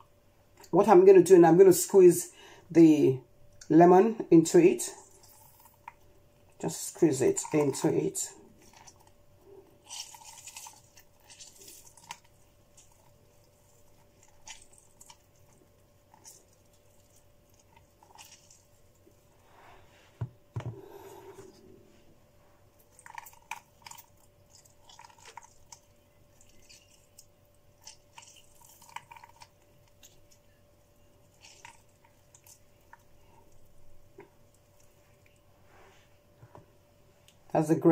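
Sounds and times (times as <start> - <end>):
juice dripping: 4.5 - 19.5, 22.6 - 35.5
wet squelches of lemon squeezing: 4.5 - 20.0, 20.8 - 36.4.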